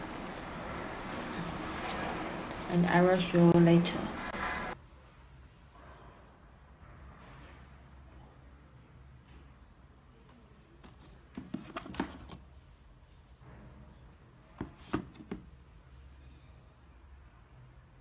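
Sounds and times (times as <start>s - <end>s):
handling taps and knocks: 10.8s - 12.4s.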